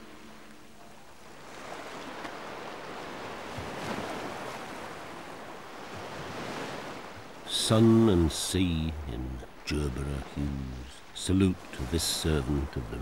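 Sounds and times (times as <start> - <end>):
sea surf washing in: 0.0 - 13.0.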